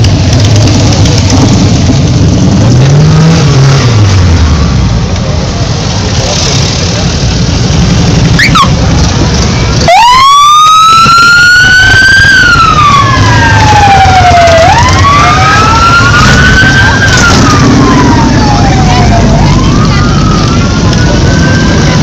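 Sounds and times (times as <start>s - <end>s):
motorcycle engines rumbling: 0.0s - 22.0s
siren wailing: 9.8s - 22.0s.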